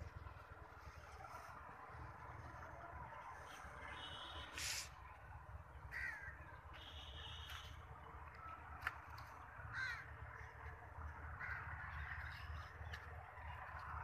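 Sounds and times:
crows cawing: 5.8s - 6.6s, 9.6s - 12.6s.

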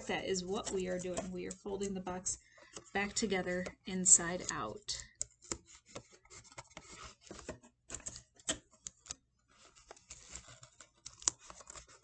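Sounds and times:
cardboard scraping against paper: 0.0s - 8.8s, 9.5s - 12.0s
cardboard clicks and crackles: 2.6s - 12.0s.

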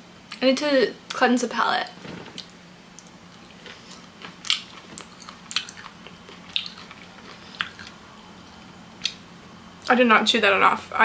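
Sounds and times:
person chewing wetly: 3.0s - 8.0s.

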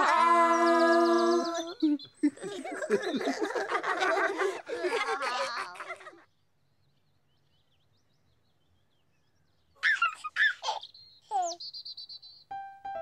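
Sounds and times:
baby giggling: 1.5s - 6.2s, 9.8s - 11.6s.

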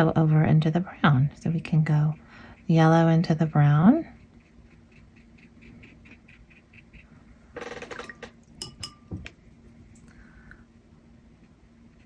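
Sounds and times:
brush dabbing on paper: 1.3s - 7.3s
brush knocked against container: 7.9s - 9.4s.

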